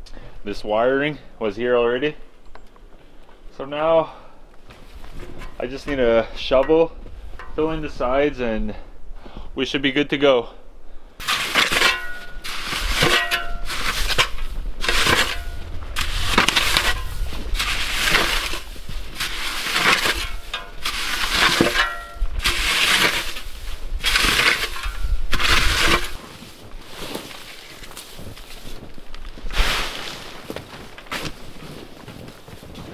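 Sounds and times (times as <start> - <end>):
snow shovel scraping snow: 11.2 - 32.9.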